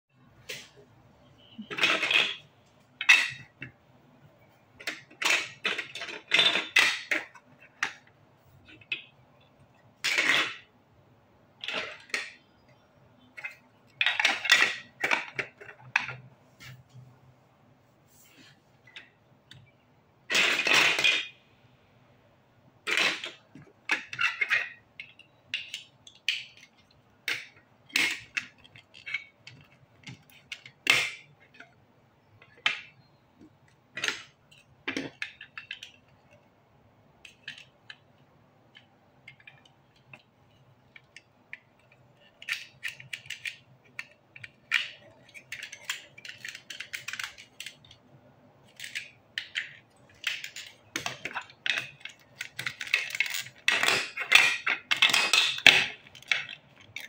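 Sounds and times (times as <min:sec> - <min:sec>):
plastic bricks clicking and clattering: 0:01.5 - 0:03.8, 0:04.7 - 0:09.2, 0:11.6 - 0:12.4, 0:13.2 - 0:16.3, 0:22.8 - 0:31.8, 0:32.4 - 0:36.5, 0:37.2 - 0:57.0.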